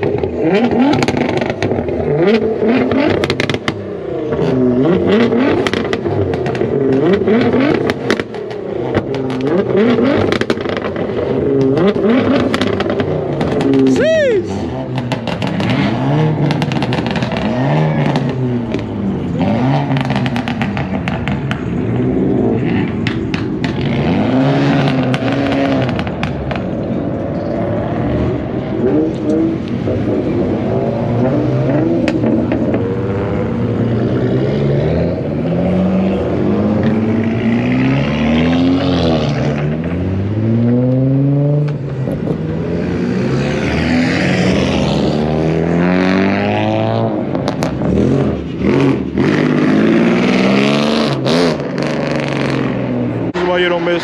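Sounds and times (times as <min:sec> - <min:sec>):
exhaust crackles and pops: 0:00.0 - 0:14.0, 0:14.9 - 0:22.1, 0:22.8 - 0:24.0, 0:24.7 - 0:27.5, 0:47.2 - 0:49.0
car engines revving: 0:00.0 - 0:54.0.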